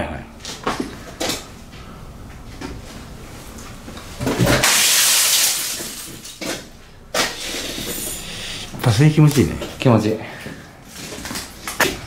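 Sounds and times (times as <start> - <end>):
object smashing against wall: 4.2 - 8.0.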